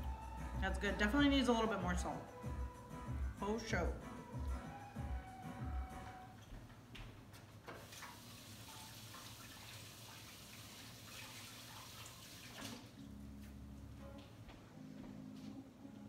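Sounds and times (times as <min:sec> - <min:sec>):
faucet running into sink: 0:07.8 - 0:13.0.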